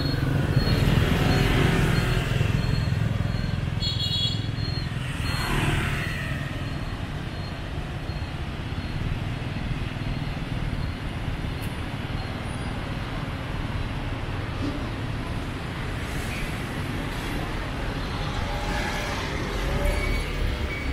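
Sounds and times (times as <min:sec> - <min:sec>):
short high-pitched beep: 0:00.0 - 0:09.1
motorbike engine and road rumble: 0:00.0 - 0:20.9.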